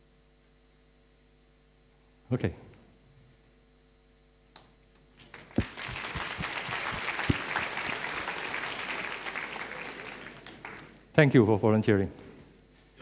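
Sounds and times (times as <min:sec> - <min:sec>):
audience applauding: 0:05.2 - 0:11.0.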